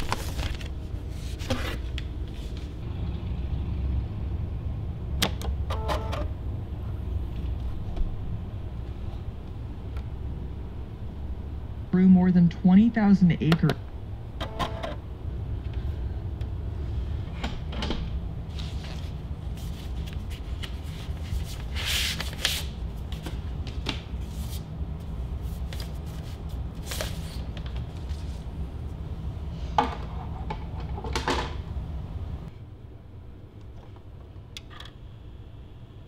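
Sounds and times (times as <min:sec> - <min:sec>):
stereo low hum: 0:00.0 - 0:36.0.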